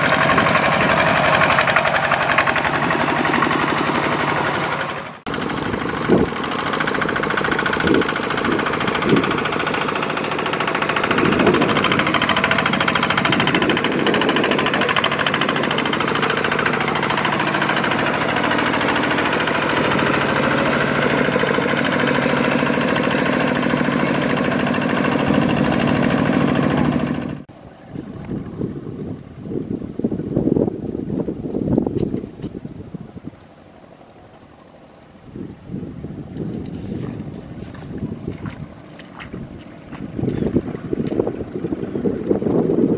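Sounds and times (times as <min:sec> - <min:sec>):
diesel engine chugging: 0:00.0 - 0:28.7.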